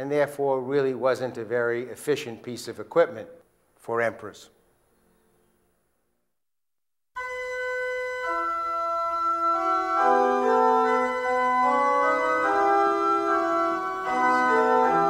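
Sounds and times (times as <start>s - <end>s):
slow organ music: 7.2s - 15.0s.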